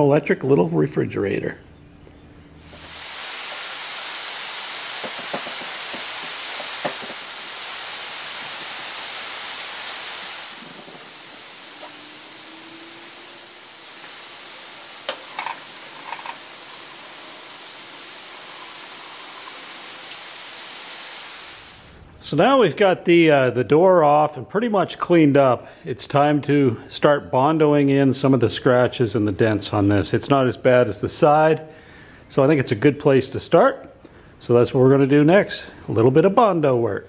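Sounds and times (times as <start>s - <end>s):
steady hiss: 2.5s - 22.2s.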